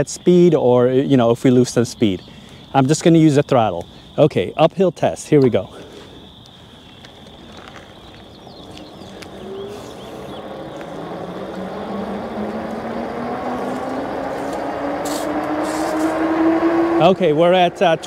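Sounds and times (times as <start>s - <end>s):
wind and road noise: 0.0s - 18.0s
electric bike motor whining: 7.4s - 17.1s.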